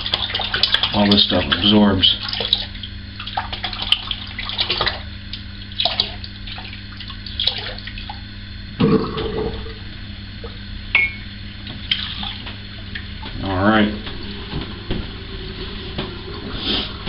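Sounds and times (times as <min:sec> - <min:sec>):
splashing water: 0:00.0 - 0:08.3.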